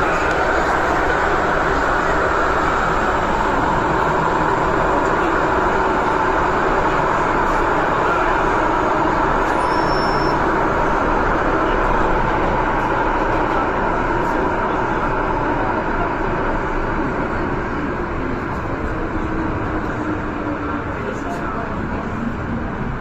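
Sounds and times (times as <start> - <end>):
train rumbling through tunnel: 0.0 - 23.0.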